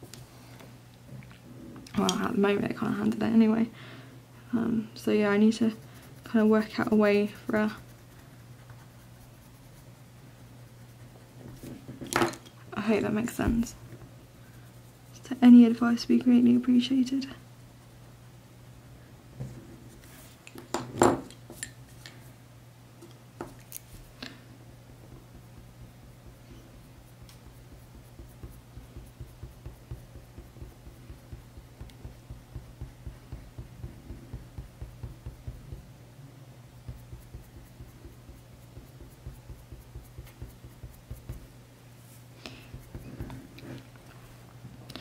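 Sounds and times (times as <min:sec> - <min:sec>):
steady low hum: 0:00.0 - 0:45.0
pencil scratching on paper: 0:05.5 - 0:10.0, 0:25.1 - 0:35.8, 0:36.9 - 0:41.5, 0:42.7 - 0:43.8.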